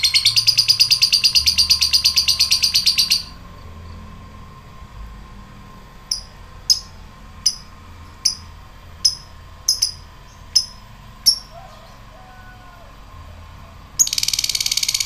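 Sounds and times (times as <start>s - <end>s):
lovebird sharp chirps: 6.1s - 11.5s, 14.0s - 15.0s.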